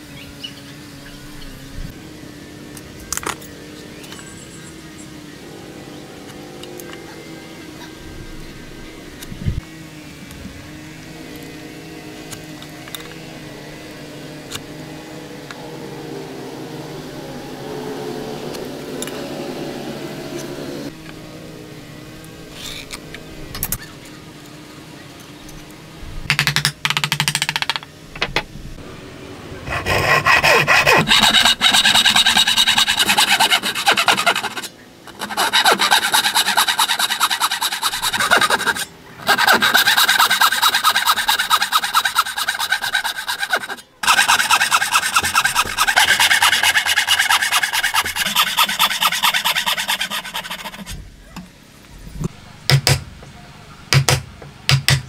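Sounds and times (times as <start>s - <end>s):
hand saw cutting wood: 29.7s - 50.9s.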